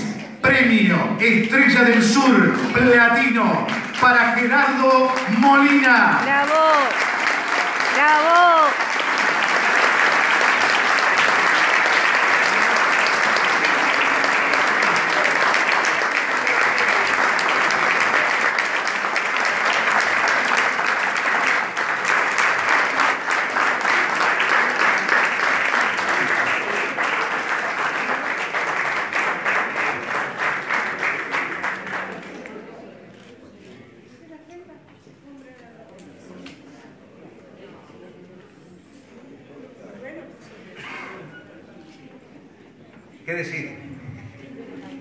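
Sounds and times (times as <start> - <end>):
audience applauding: 1.6 - 33.3.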